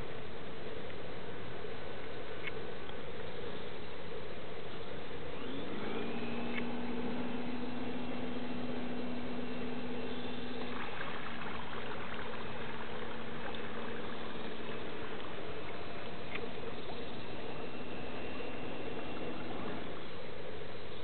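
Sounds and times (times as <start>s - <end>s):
rushing water: 0.0s - 21.0s
electric motor whine: 5.2s - 20.3s.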